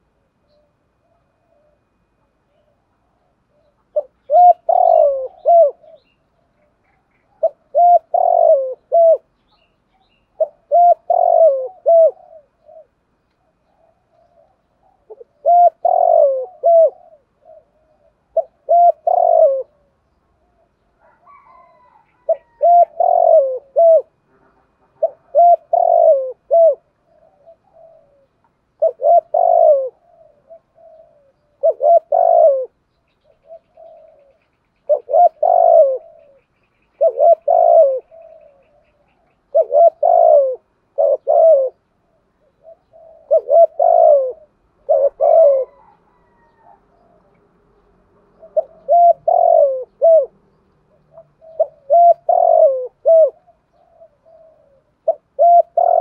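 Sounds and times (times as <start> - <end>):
dove cooing: 0.0 - 56.0.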